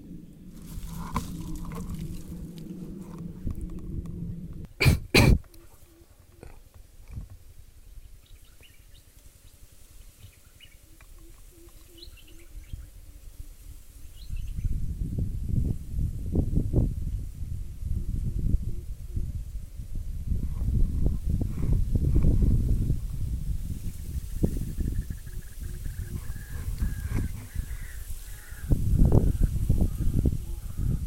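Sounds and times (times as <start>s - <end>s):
rifle handling rumble: 0.1s - 4.7s.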